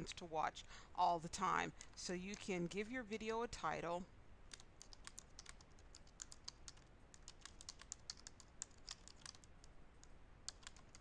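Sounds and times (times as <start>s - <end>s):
faint typing on a keyboard: 1.5s - 2.8s, 4.5s - 11.0s.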